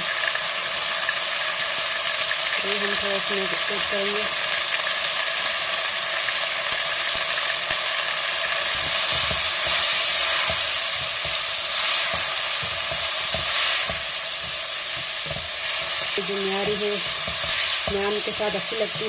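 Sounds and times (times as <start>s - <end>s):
chicken sizzling in hot oil: 0.0s - 19.0s
wooden spatula stirring: 8.8s - 19.0s.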